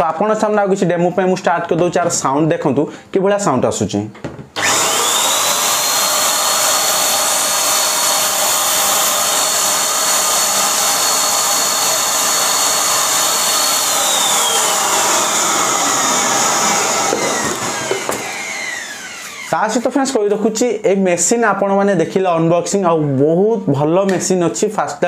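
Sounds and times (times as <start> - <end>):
paint sprayer turbine whine: 4.6 - 20.2.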